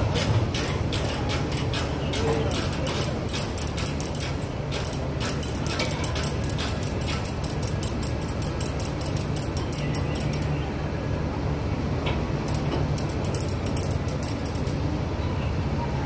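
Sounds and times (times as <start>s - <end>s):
rapid metallic clicking: 0.1s - 10.5s, 12.5s - 14.8s.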